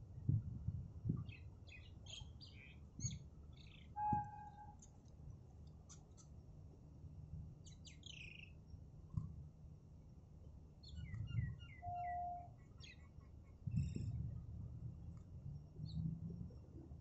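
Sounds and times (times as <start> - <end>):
brief steady tone: 4.0 - 4.8, 11.8 - 12.5
low rumble: 13.7 - 17.0.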